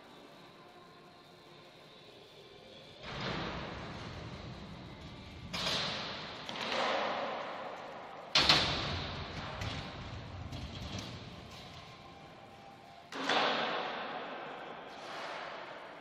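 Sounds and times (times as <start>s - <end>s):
scooter wheels rolling: 3.1s - 13.6s.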